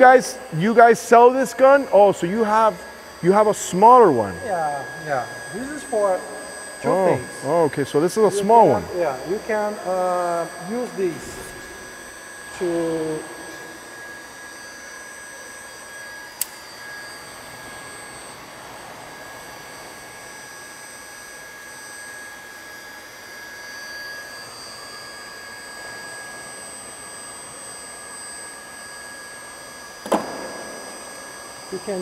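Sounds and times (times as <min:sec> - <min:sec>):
electric blower whirring: 0:00.0 - 0:19.6, 0:30.0 - 0:32.0
high whine tones: 0:00.0 - 0:32.0.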